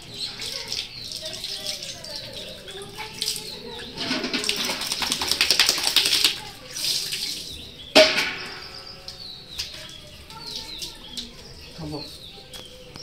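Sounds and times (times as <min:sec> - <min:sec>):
water splashing on concrete: 0:00.0 - 0:11.7
metal bucket clanking down: 0:03.8 - 0:06.4, 0:07.9 - 0:09.2.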